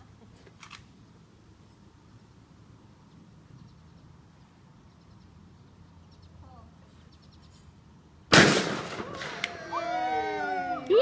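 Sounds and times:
bird chirping trills: 3.0 - 7.7.

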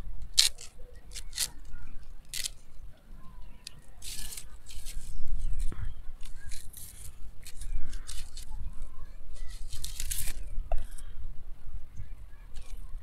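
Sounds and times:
straws rustling: 0.2 - 2.8, 3.4 - 10.6
knife scraping straws: 0.4 - 1.6, 2.3 - 2.6, 3.6 - 8.5, 9.4 - 10.4.

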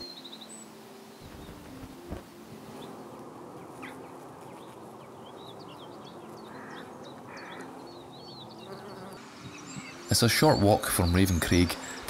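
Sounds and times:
birds chirping: 0.0 - 12.0
bumblebee buzzing: 8.6 - 10.0.

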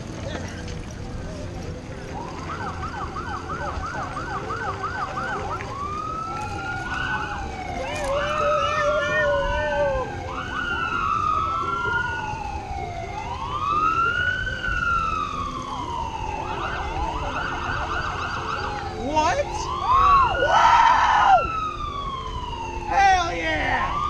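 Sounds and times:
emergency vehicle sirens wailing: 0.0 - 24.0.

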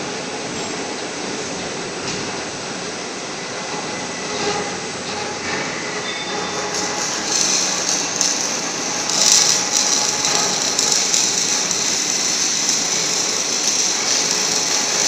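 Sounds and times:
workshop machinery running: 0.0 - 15.0
strong hiss: 5.6 - 15.0.

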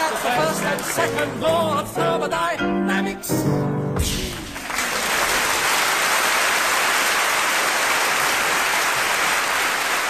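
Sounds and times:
audience applauding: 0.0 - 1.5, 4.3 - 10.0.

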